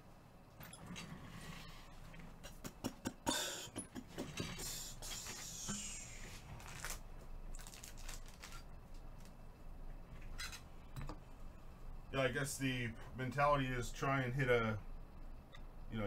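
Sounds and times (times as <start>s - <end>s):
cards and packaging rustling: 6.5s - 9.4s.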